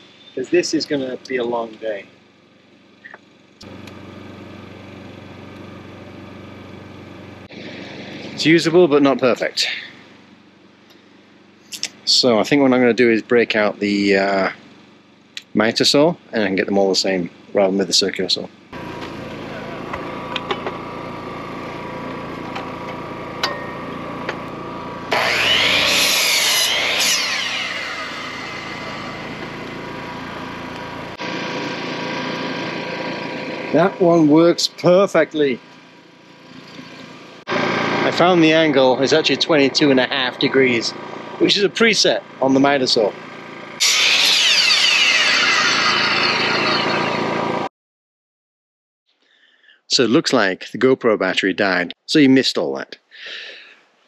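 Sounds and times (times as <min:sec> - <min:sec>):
steady hum: 0:03.0 - 0:47.6
miter saw cutting wood: 0:18.8 - 0:47.7
engine idling: 0:26.7 - 0:47.4.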